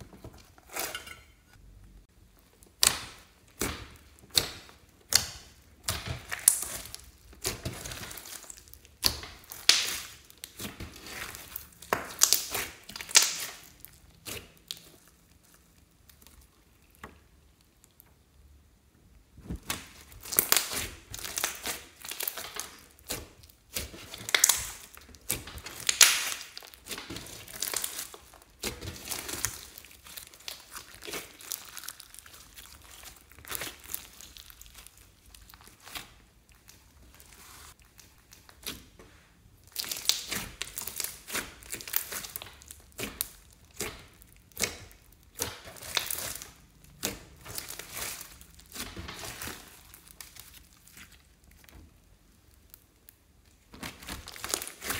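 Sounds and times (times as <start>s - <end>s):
slime crackling and squishing: 1.9s - 54.9s.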